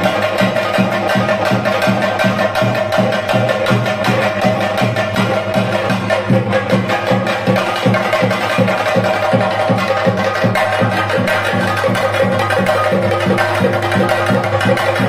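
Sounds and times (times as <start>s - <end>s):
drums beating quick rhythm: 0.0s - 15.0s
held tones: 12.0s - 15.0s.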